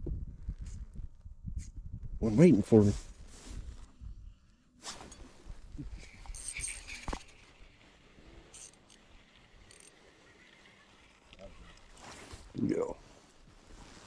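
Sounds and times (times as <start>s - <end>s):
fishing tackle clicks and clinks: 6.0s - 7.4s, 8.4s - 10.1s.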